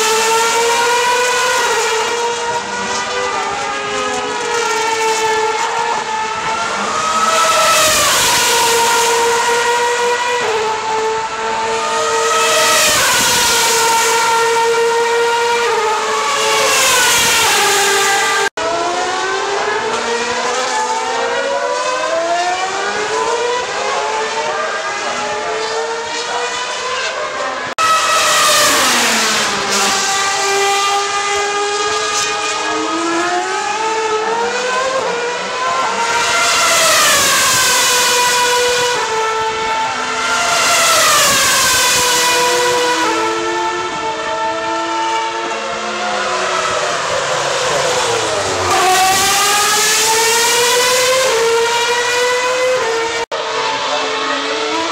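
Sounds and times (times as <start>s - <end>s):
racing cars passing at high revs: 0.0s - 54.9s.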